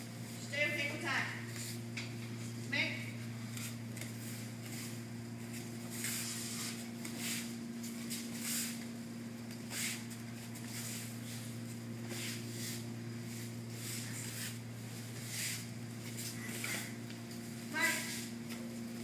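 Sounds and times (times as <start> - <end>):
steady low hum: 0.0 - 19.0
bare feet scuffing on mats: 3.5 - 8.9, 9.7 - 17.0.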